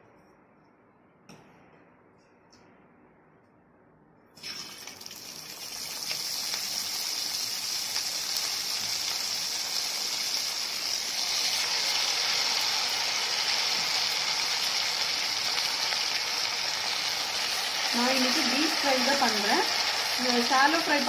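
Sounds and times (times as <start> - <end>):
fish sizzling in hot oil: 4.4 - 21.0.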